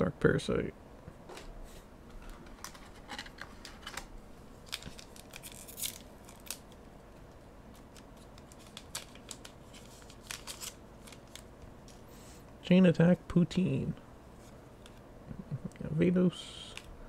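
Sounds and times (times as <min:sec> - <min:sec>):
foil wrapper crinkling and ripping: 0:04.6 - 0:06.8, 0:07.8 - 0:11.6.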